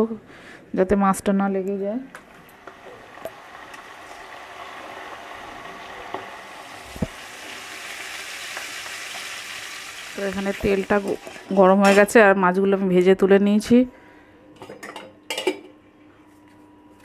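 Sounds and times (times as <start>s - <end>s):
oil popping: 2.1s - 9.4s
fish frying in hot oil: 2.4s - 11.5s.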